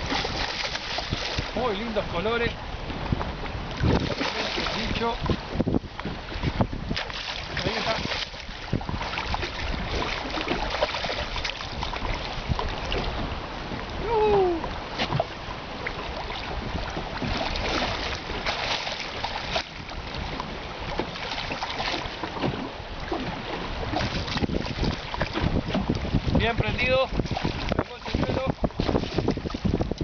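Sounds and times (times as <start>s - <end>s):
fish splashing in water: 0.0s - 1.6s
wind buffeting microphone: 0.0s - 30.0s.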